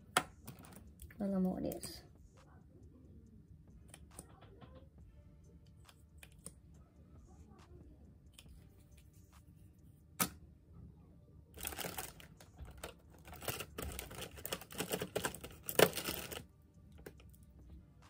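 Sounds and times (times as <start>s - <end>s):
makeup products clicking and clattering: 11.6s - 16.4s.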